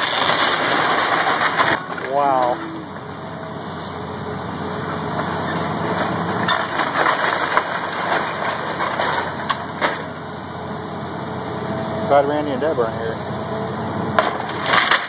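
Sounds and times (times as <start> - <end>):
wood cracking and snapping: 0.0 - 2.6, 5.9 - 10.1, 14.2 - 15.0
excavator engine running: 0.0 - 15.0.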